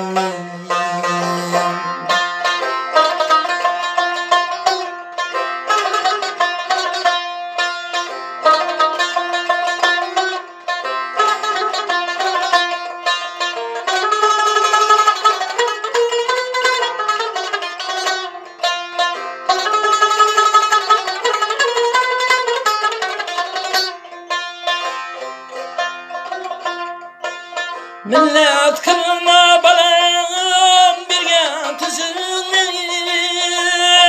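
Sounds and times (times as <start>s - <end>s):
person singing held note: 0.0s - 2.2s
plucked lute: 0.0s - 34.0s.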